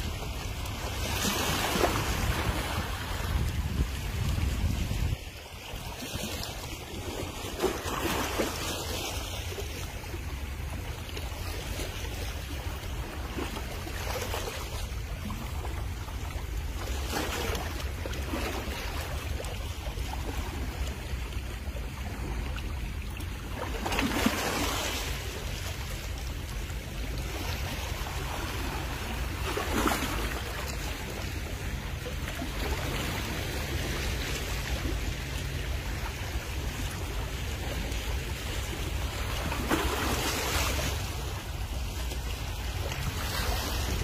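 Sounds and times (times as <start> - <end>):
wind on microphone: 0.0 - 7.8
sea water washing on rocks: 0.0 - 44.0.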